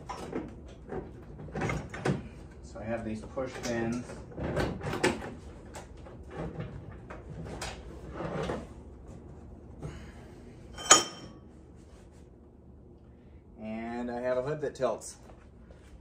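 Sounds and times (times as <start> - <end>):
metal clank with ring: 10.8 - 11.4.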